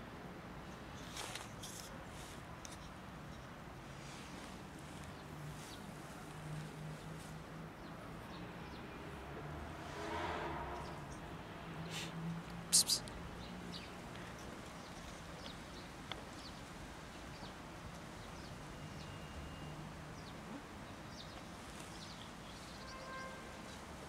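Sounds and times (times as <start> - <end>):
short faint call: 12.7 - 13.1.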